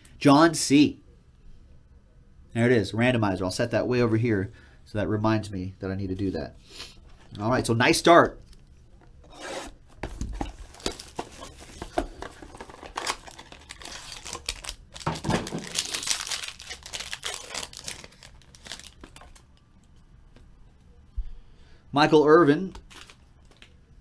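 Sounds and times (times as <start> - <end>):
foil pack tearing and crinkling: 10.6 - 19.4.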